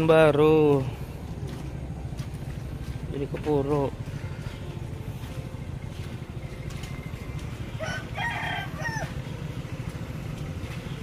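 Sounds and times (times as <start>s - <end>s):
truck and motorbike engines idling: 0.0s - 11.0s
rooster crowing: 7.8s - 9.4s.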